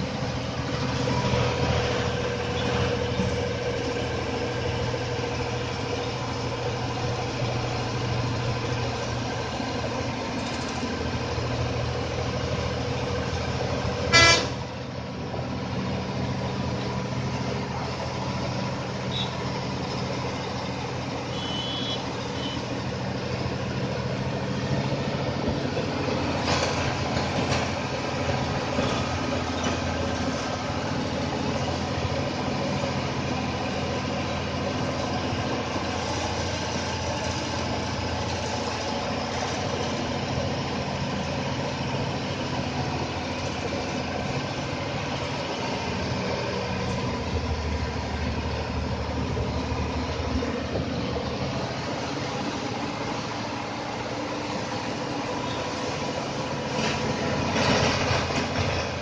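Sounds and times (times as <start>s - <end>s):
bus engine running: 0.0s - 59.0s
bus horn toot: 14.1s - 14.6s, 19.1s - 19.4s, 21.3s - 22.7s.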